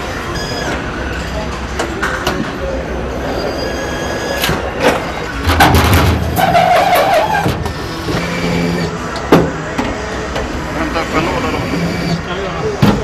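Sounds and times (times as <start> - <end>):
steady machine hum: 7.6 - 12.8.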